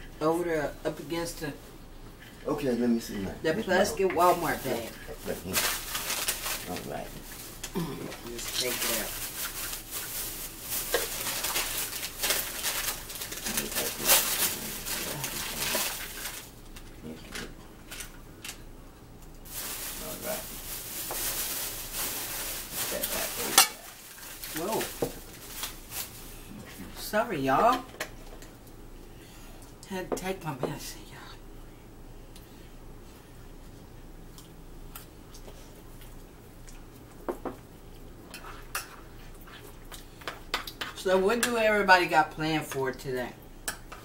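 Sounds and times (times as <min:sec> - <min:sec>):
faint low hum: 0:00.0 - 0:43.8
plastic bag rustling: 0:04.2 - 0:16.8, 0:19.4 - 0:27.0.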